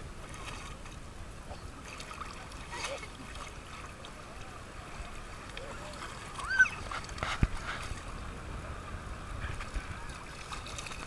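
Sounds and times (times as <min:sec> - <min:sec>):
water sloshing around legs: 0:00.2 - 0:08.2, 0:09.5 - 0:11.0
distant voices: 0:01.5 - 0:11.0
child squealing: 0:06.4 - 0:06.9.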